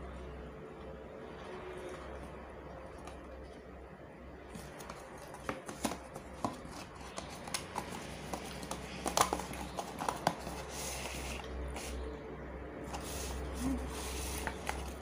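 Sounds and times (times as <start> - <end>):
chopsticks tapping on paper box: 4.5 - 10.6.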